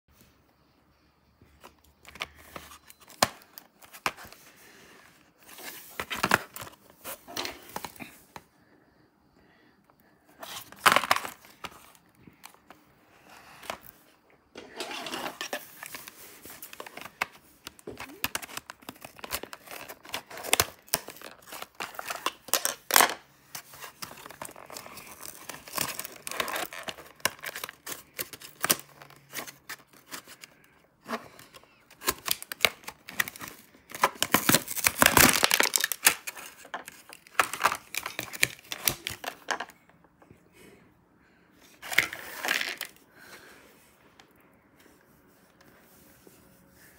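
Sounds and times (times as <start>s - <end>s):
plastic blister pack tearing: 14.8s - 23.1s, 23.9s - 30.4s, 31.9s - 39.6s.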